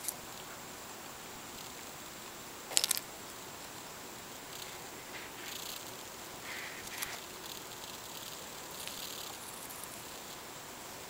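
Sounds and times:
steady hiss: 0.0s - 11.0s
faint scratchy rustles: 4.4s - 10.6s.

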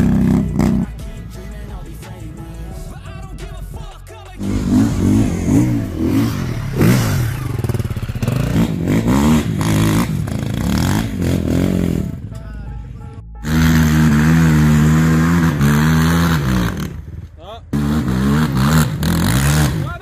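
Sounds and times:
quad engine at high revs: 0.0s - 1.0s, 4.4s - 12.3s, 13.4s - 20.0s
dirt bike engines revving: 0.0s - 12.4s, 13.4s - 20.0s.

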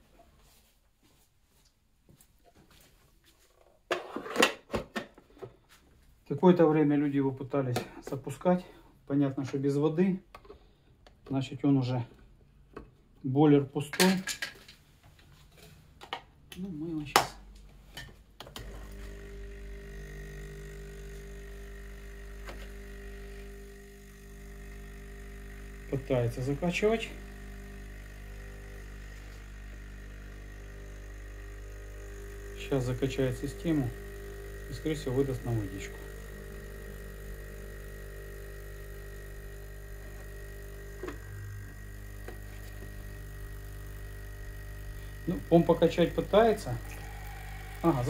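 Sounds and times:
espresso machine pump buzzing: 18.4s - 48.0s.

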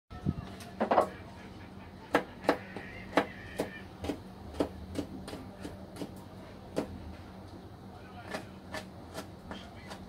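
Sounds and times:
knife chopping on plastic board: 2.1s - 7.0s, 8.2s - 10.0s.

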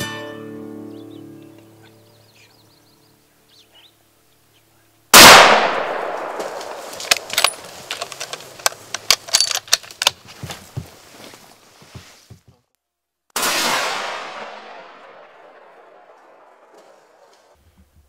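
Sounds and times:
loud gunshot: 5.2s - 7.0s, 13.4s - 17.3s
sharp clicks and knocks: 6.4s - 10.6s.

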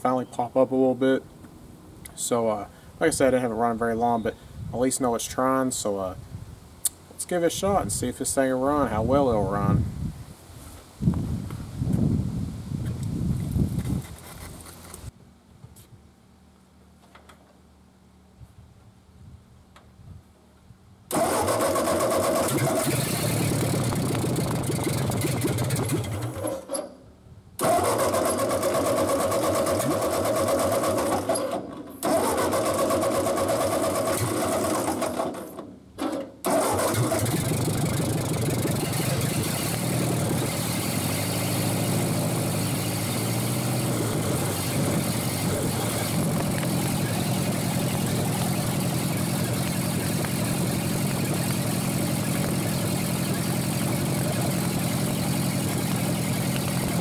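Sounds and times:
tractor engine starting and running: 21.1s - 27.0s, 27.6s - 57.0s.

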